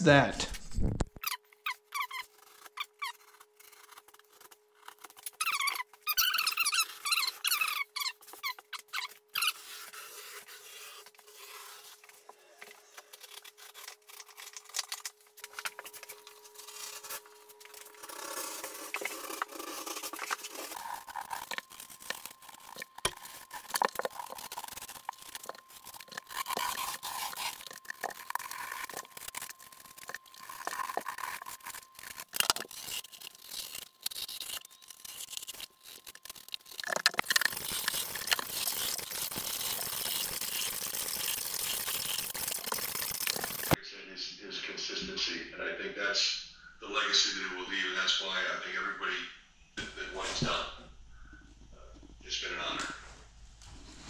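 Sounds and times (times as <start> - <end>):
knife scraping drywall: 8.3 - 12.2, 15.8 - 43.8.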